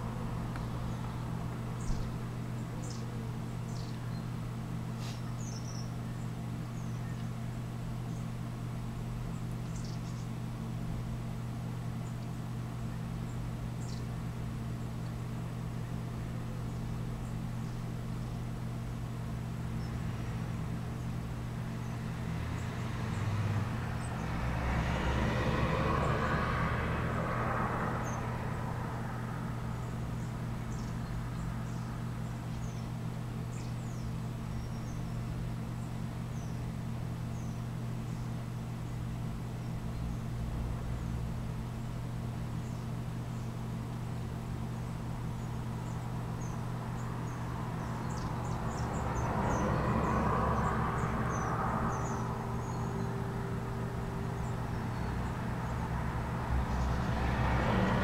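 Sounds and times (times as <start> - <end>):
steady low hum: 0.0 - 58.0
small birds calling: 0.4 - 25.0, 27.9 - 57.2
passing vehicle: 21.6 - 32.2, 45.8 - 58.0.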